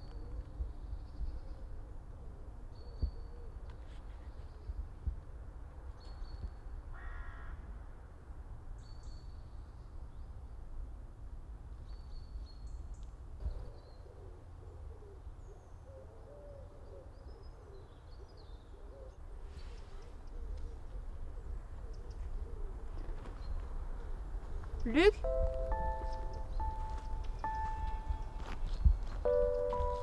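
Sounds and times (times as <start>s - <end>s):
low rumble of wind: 0.0s - 30.0s
birds chirping: 24.7s - 30.0s.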